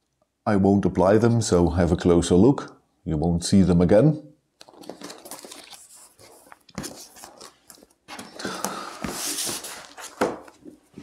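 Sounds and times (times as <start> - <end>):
sticker sheets rustling: 4.6 - 11.0.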